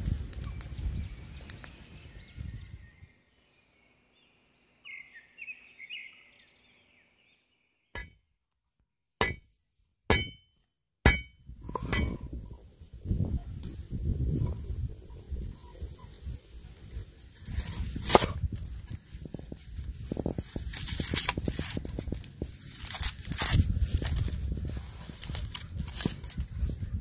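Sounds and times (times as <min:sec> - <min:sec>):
wood fire crackling: 0:00.0 - 0:02.8
faint bird chirps: 0:00.4 - 0:07.9
cleaver striking chopping board: 0:09.2 - 0:09.5, 0:10.1 - 0:10.4, 0:11.1 - 0:12.1.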